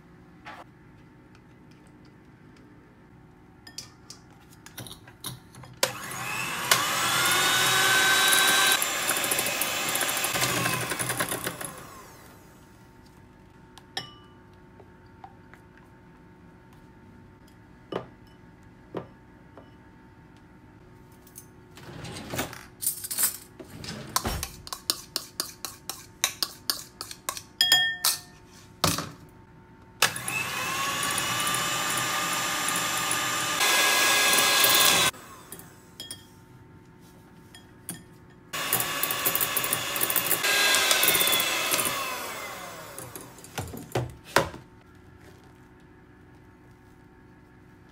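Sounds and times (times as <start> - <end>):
electric hand mixer whipping: 5.9 - 12.5, 30.0 - 35.4, 38.6 - 43.5.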